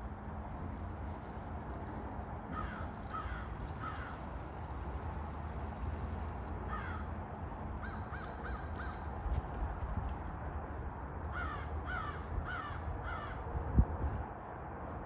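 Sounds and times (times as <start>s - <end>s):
low outdoor rumble: 0.0s - 15.0s
crows cawing: 2.5s - 4.2s, 6.7s - 7.1s, 7.8s - 9.0s, 11.3s - 13.4s.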